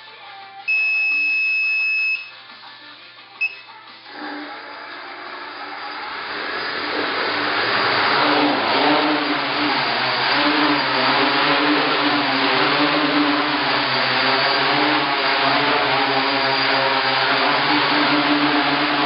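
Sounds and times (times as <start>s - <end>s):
electronic beeps: 0.7s - 2.3s, 3.4s - 3.7s
drone motors whirring: 4.1s - 19.0s.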